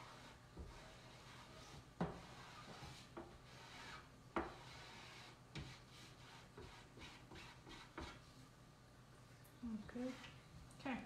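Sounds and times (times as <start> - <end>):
squeegee scraping paste on stencil: 0.0 - 8.3.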